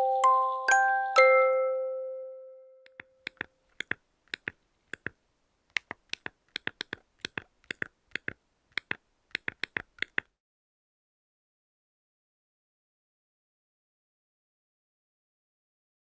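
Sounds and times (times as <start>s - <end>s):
phone keyboard typing taps: 2.9s - 10.3s.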